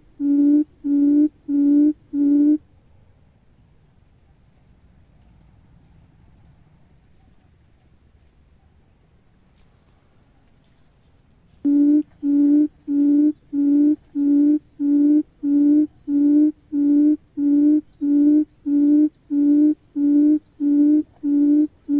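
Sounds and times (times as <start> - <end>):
quail lure call hooting: 0.0 - 2.6, 11.7 - 21.9.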